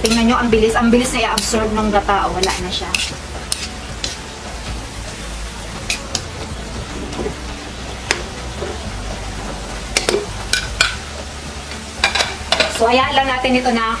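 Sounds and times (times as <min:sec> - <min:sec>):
metal spatula scraping wok: 0:00.0 - 0:05.0, 0:05.6 - 0:08.8
low sizzle: 0:00.0 - 0:14.0.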